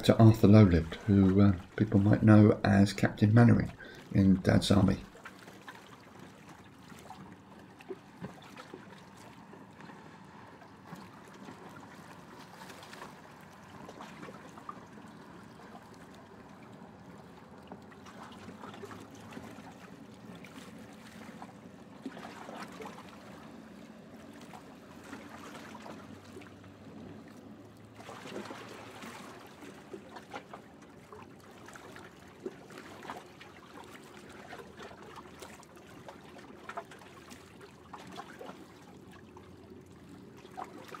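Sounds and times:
low hum of distant traffic: 0.0 - 41.0.

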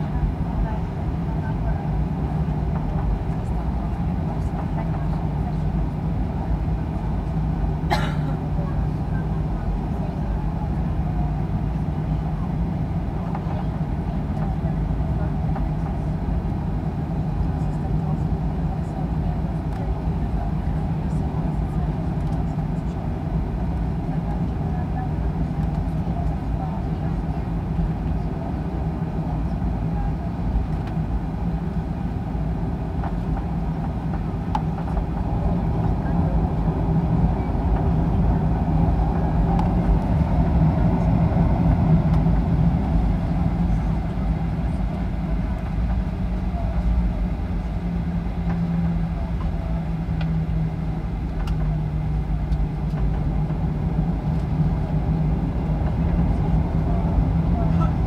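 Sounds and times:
jet engines low rumble: 0.0 - 58.0
cabin air hum: 16.0 - 58.0.

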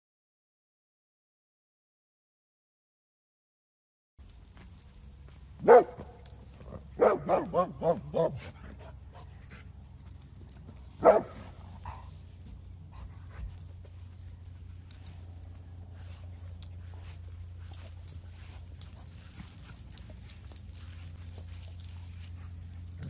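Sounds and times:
puppy barking: 5.6 - 9.3, 11.0 - 12.1.

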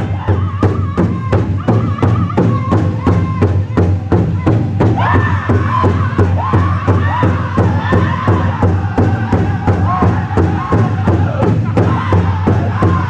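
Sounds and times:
higher voices singing: 0.0 - 13.0
large drum steady beat: 0.0 - 13.0
group singing: 4.9 - 13.0.

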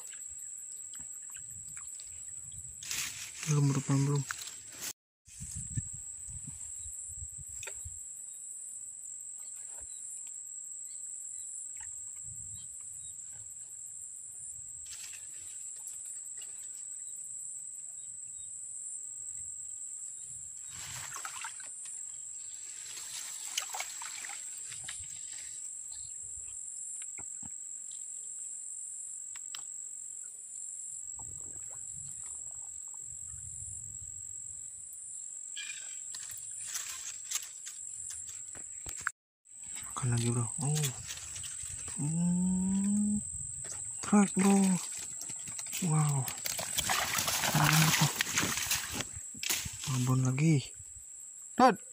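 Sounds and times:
insects calling: 0.0 - 51.9
rustling of leaves: 2.8 - 5.6, 22.3 - 25.7, 35.6 - 42.8, 44.0 - 50.4.

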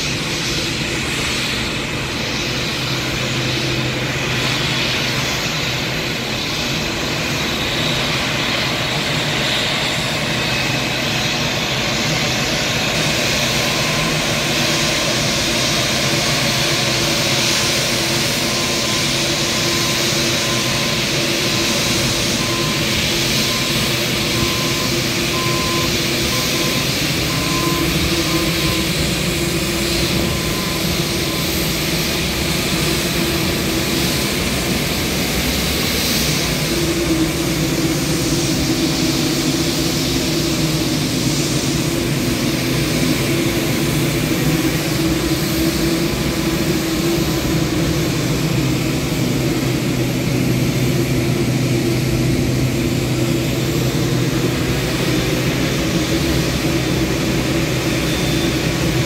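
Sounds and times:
jet engines idling: 0.0 - 59.0.

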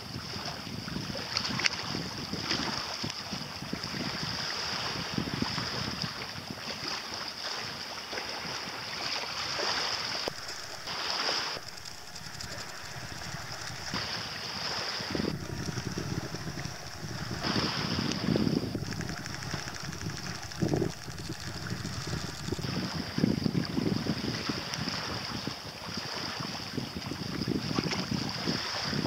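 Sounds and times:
steady high hiss: 10.2 - 23.0
wind buffeting microphone: 10.3 - 26.1.

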